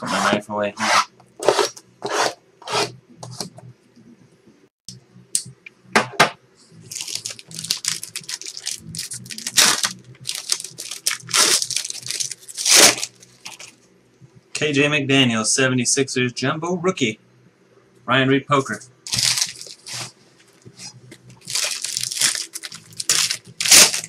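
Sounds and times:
packaging tearing and crinkling: 6.9 - 13.8, 19.1 - 20.2, 21.4 - 24.0.

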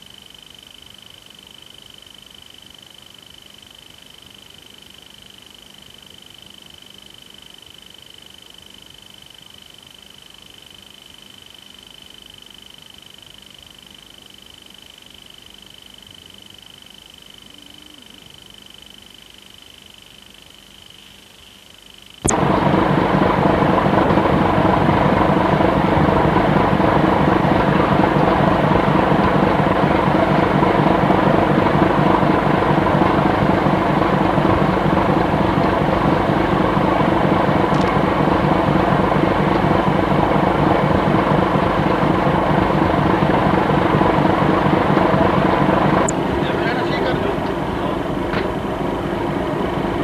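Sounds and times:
faint hum: 0.0 - 50.0
ship diesel engine throbbing: 22.3 - 50.0.

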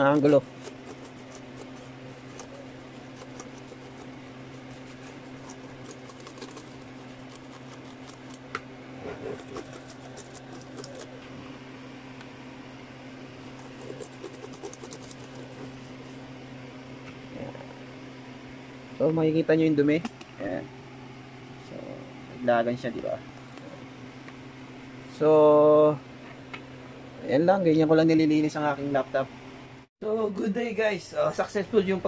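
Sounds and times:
small brush scratching and clicking: 0.0 - 11.2, 13.4 - 16.2
steady low hum: 0.0 - 32.0.

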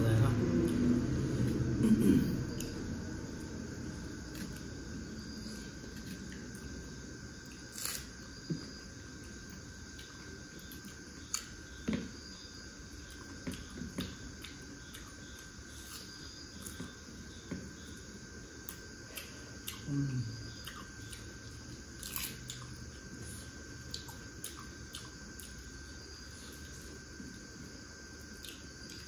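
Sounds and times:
chewing and eating sounds: 18.6 - 27.5.

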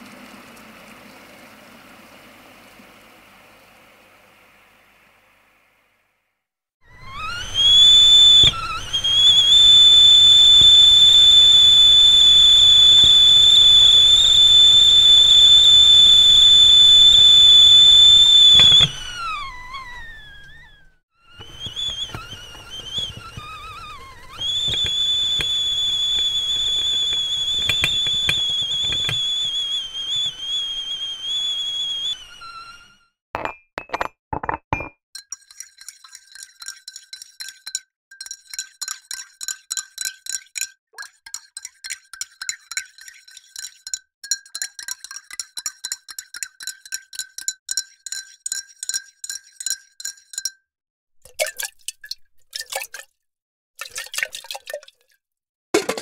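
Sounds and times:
kettle whistling: 6.8 - 34.0
wavering whistle: 6.9 - 33.2.

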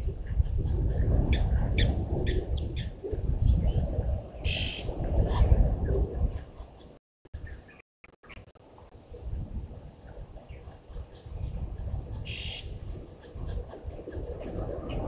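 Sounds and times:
birds chirping: 10.0 - 15.0.

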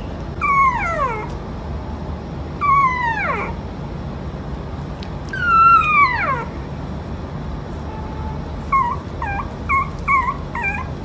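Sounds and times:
puppy whining: 0.3 - 1.4, 2.6 - 3.6, 5.2 - 6.6, 8.6 - 11.0.

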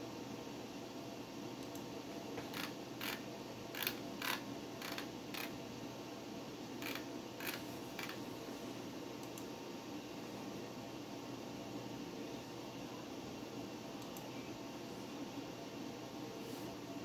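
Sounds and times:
computer fan hum: 0.0 - 17.0
hard drive scratchy clicks: 2.4 - 3.2, 3.8 - 5.6, 6.8 - 8.2.

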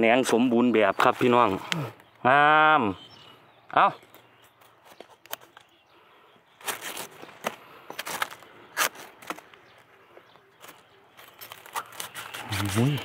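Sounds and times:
rustling bamboo litter: 6.6 - 9.8, 10.6 - 13.0.

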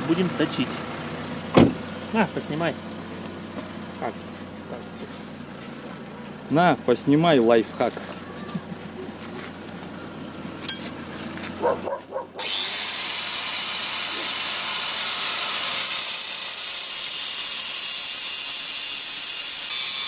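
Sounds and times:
angle grinder grinding metal: 10.7 - 11.0, 11.6 - 20.0.

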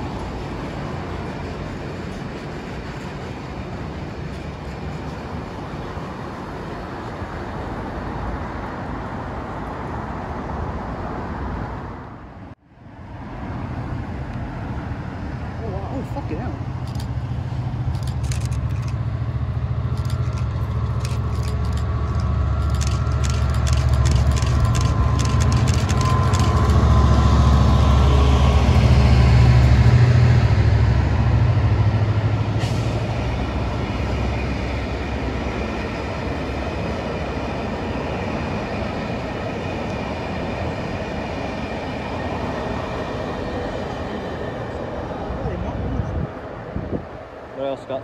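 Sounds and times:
diesel locomotive engine: 0.0 - 48.0
sharp clicks: 19.9 - 26.8.

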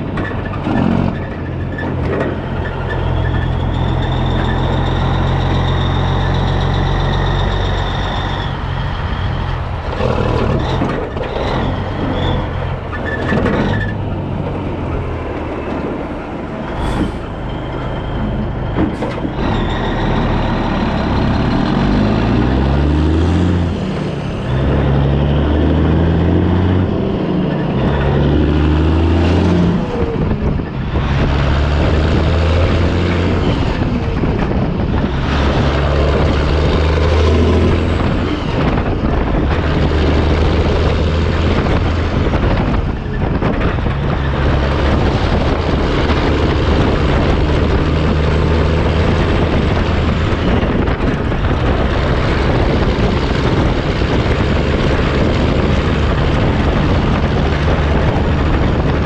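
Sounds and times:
diesel truck engine running: 0.0 - 59.0
road and wind noise: 0.0 - 59.0.

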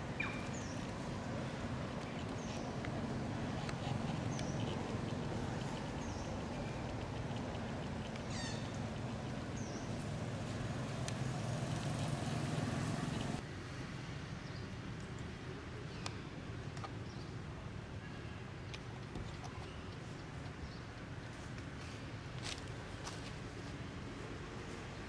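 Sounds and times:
low background noise: 0.0 - 25.0
high-pitched animal calls: 3.8 - 9.2.

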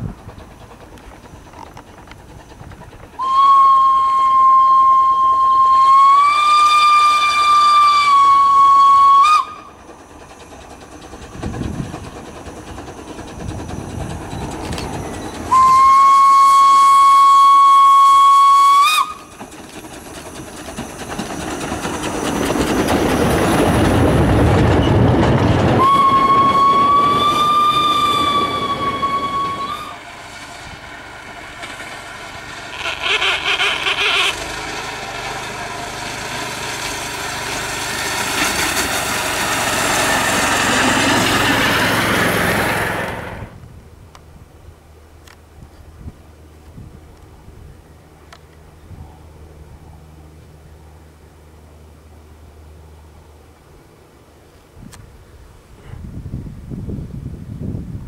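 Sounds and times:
locomotive exhaust and wheels: 0.0 - 58.0
steam locomotive whistle blasts: 3.2 - 9.7, 15.5 - 19.3, 25.7 - 30.2.

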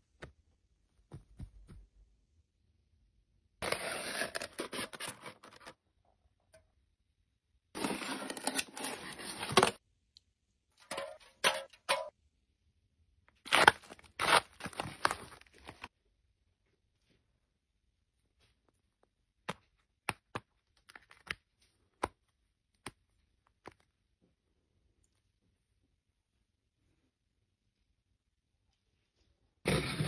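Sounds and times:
paper and packaging rustling: 3.6 - 5.8, 7.8 - 9.8, 13.5 - 15.9.

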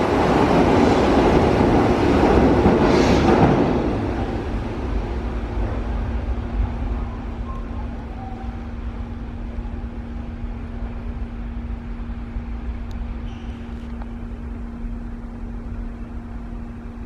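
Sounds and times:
constant hum: 3.9 - 17.0.

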